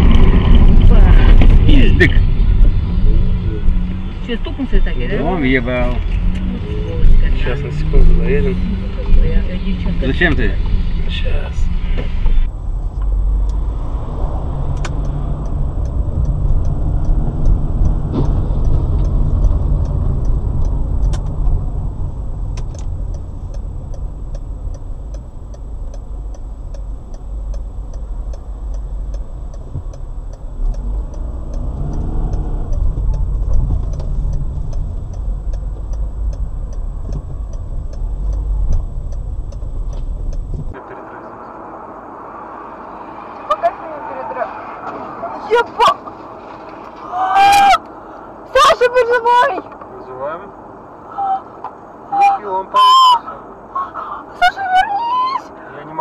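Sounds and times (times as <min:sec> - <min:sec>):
car road and engine rumble: 0:00.0 - 0:56.0
faint ticking: 0:11.9 - 0:40.8.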